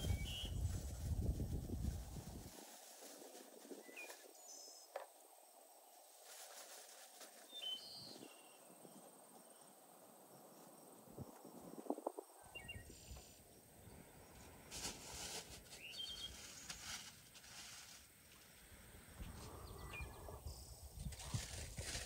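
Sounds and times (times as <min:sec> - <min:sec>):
bird chirps: 0:00.0 - 0:00.6, 0:07.5 - 0:09.7, 0:12.4 - 0:13.2, 0:15.7 - 0:16.8, 0:19.4 - 0:20.8.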